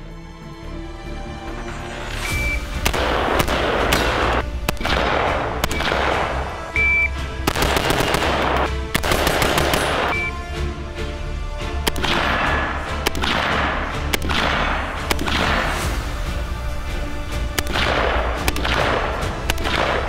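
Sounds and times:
background music with bass: 0.0s - 20.0s
short high beep: 2.2s - 2.6s, 6.8s - 7.1s
rifle shots echoing: 2.7s - 10.3s, 11.8s - 16.2s, 17.4s - 20.0s.

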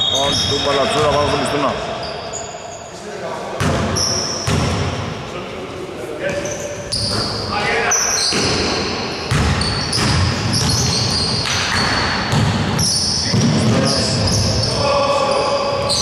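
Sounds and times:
sneakers squeaking: 0.0s - 3.0s, 3.6s - 5.2s, 6.2s - 16.0s
basketball dribbling on wooden floor: 9.3s - 12.7s.

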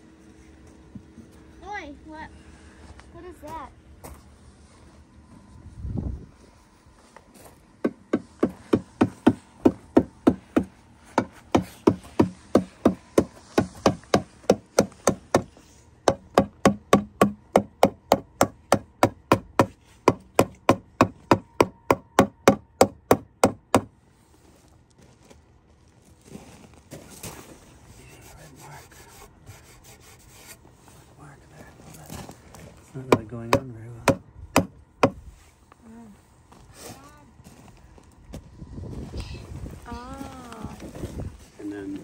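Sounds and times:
rubber mallet knocking on wood: 16.1s - 23.9s.

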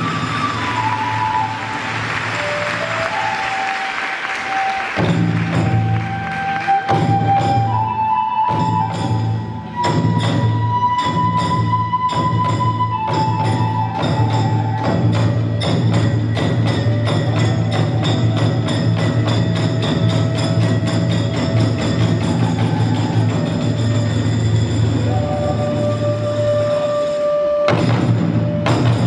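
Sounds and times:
bamboo flute long notes: 0.0s - 29.0s
drum beats: 0.0s - 29.0s.

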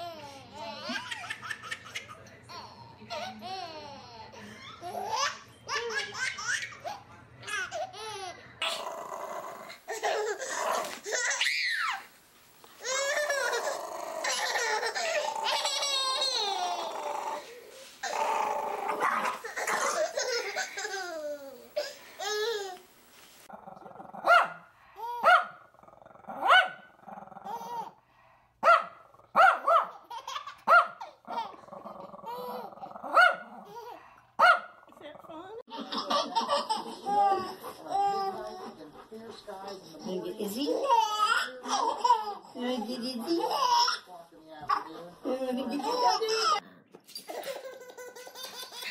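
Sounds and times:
small dog growling: 8.6s - 9.8s, 13.2s - 15.8s, 16.5s - 20.0s, 25.5s - 27.9s, 31.2s - 33.9s
baby squealing and babbling: 9.9s - 12.1s, 12.8s - 22.8s
small dog barking: 24.2s - 24.6s, 25.2s - 25.6s, 26.4s - 26.9s, 28.6s - 30.0s, 30.6s - 31.0s, 33.1s - 33.5s, 34.4s - 34.8s.

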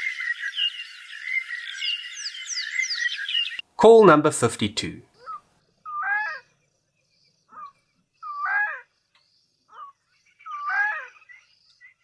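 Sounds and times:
wild animal harsh calls: 5.2s - 6.5s, 7.5s - 8.9s, 9.7s - 11.2s.

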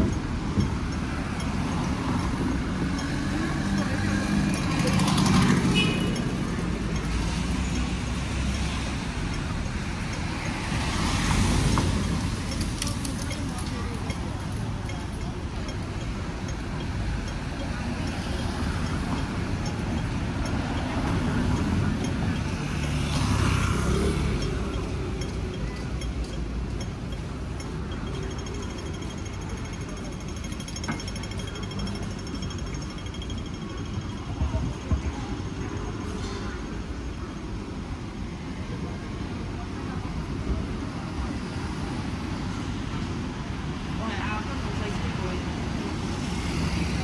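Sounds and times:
crossing signal ticking: 0.0s - 36.1s
road traffic rumble: 0.0s - 47.0s.

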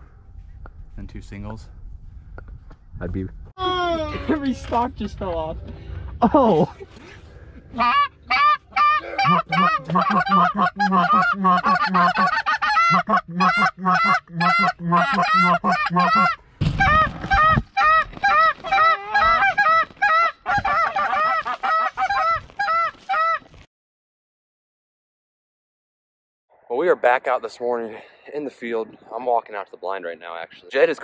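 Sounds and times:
geese honking: 7.8s - 23.5s.

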